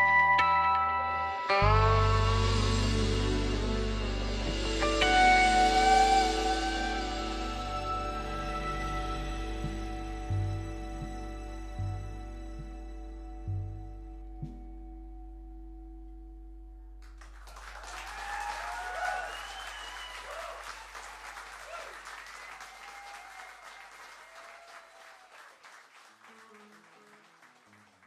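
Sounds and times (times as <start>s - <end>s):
plucked guitar notes: 0.0s - 17.4s
band holding final chord: 1.6s - 17.2s
deep bass note: 1.6s - 17.6s
audience applause and cheers: 17.1s - 28.0s.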